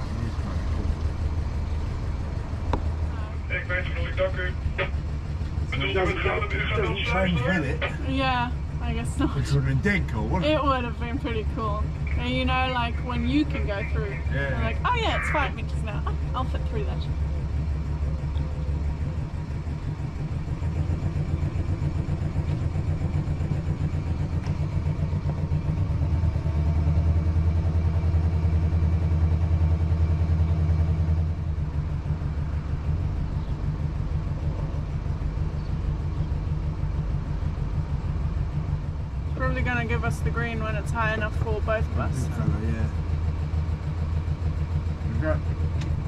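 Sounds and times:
boat engine running: 0.0 - 46.0.

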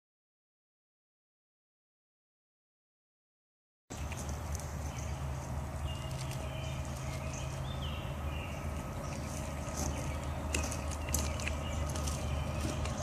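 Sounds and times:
bird chirps: 3.9 - 13.0
steady low hum: 3.9 - 13.0.

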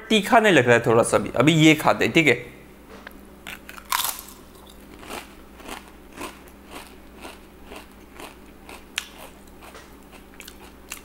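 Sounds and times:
chewing crunches: 3.5 - 11.0
person crunching potato chip: 3.5 - 11.0.

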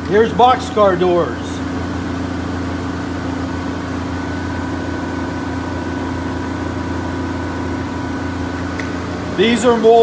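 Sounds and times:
machinery humming: 0.0 - 10.0.

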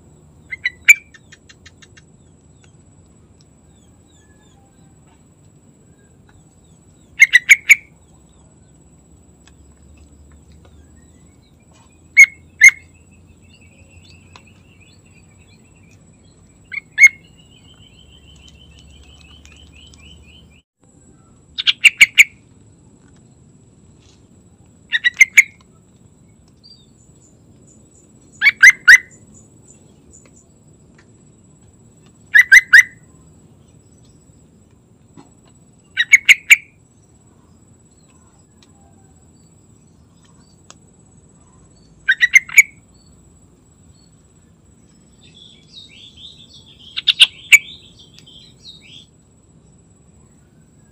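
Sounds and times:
faint fast bird trills: 24.9 - 25.6, 45.2 - 49.1.

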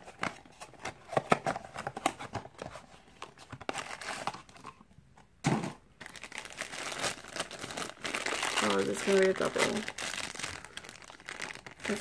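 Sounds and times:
foil bag crinkling: 6.0 - 12.0.

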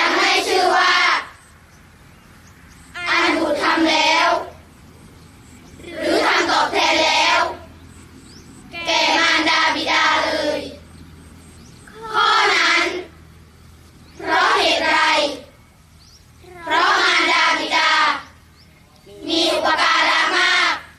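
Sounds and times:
children chanting in unison: 0.0 - 1.7, 2.8 - 5.1, 5.7 - 7.9, 8.6 - 13.4, 14.0 - 15.6, 16.3 - 18.5, 19.1 - 20.9.

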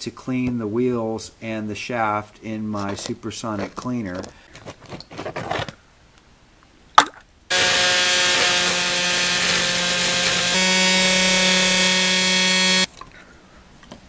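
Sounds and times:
ultrasonic cleaner buzzing: 7.5 - 12.9.

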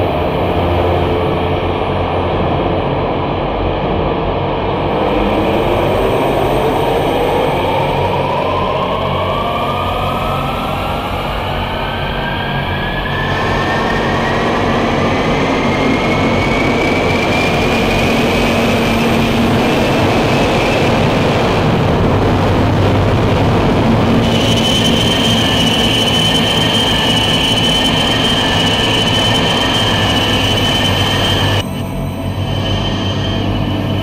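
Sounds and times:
dense noise drone: 0.0 - 34.0
higher whine: 0.0 - 34.0
thin whining tone: 24.2 - 34.0.

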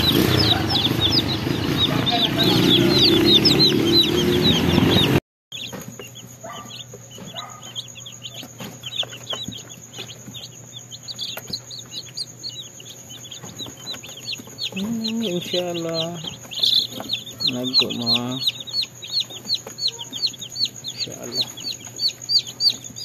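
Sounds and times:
loud background noise: 0.0 - 5.2
chicks peeping: 0.0 - 23.0.

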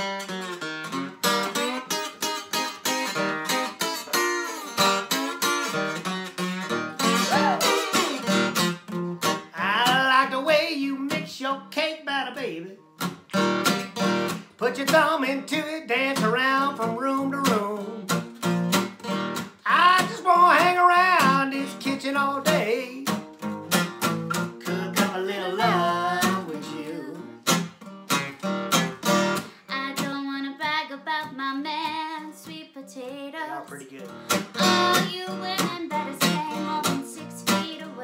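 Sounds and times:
acoustic guitar strummed: 0.0 - 38.0
person singing: 7.0 - 8.5, 9.5 - 12.8, 14.6 - 18.1, 19.7 - 23.1, 24.6 - 27.4, 29.7 - 38.0.

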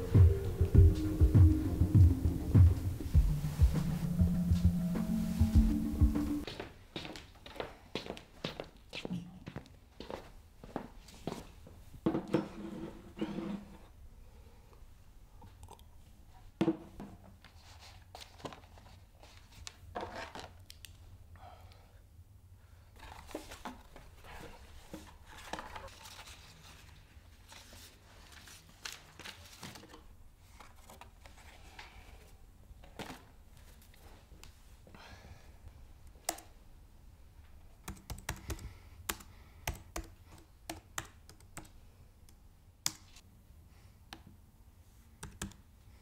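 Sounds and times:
papers rustling: 23.0 - 32.0
laptop keyboard typing: 37.8 - 41.8, 45.2 - 45.6.

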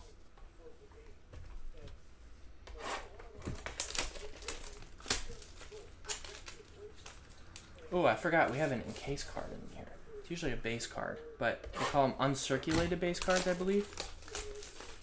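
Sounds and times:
plastic wrap crinkling and tearing: 3.2 - 9.5, 12.7 - 15.0.

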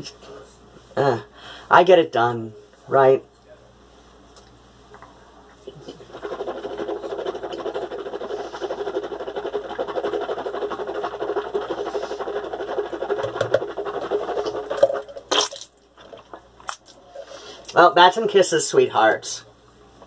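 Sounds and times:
mouthwash sloshing in mouth: 5.7 - 17.0.

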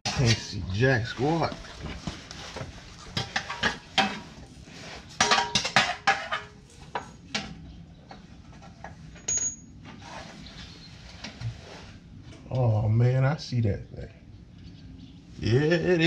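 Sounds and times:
metallic clinks and knocks: 9.1 - 9.8.

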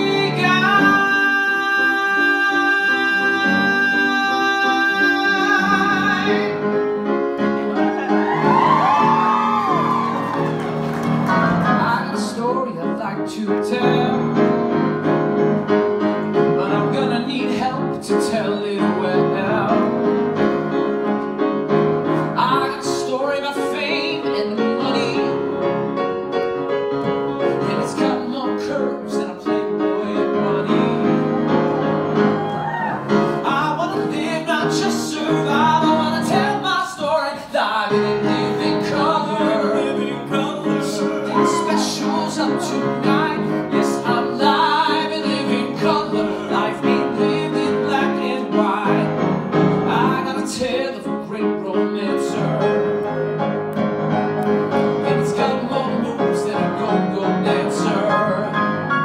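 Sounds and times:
man singing: 0.0 - 6.9, 11.6 - 14.7, 16.4 - 20.2, 22.4 - 25.6, 27.3 - 31.8, 33.3 - 53.2, 55.0 - 59.0
live band with piano: 0.0 - 59.0.

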